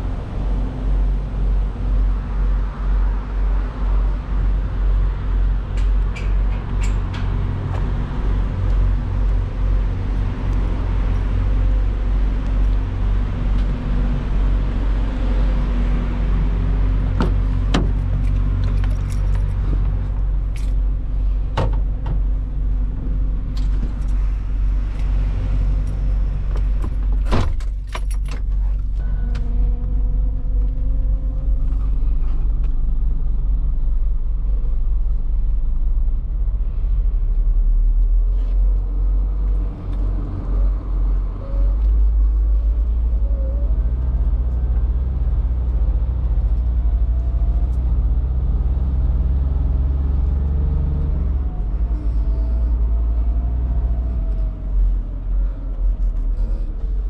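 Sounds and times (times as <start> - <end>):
diesel truck engine running: 0.0 - 57.0
truck cab rattling: 16.9 - 22.6, 26.4 - 30.0.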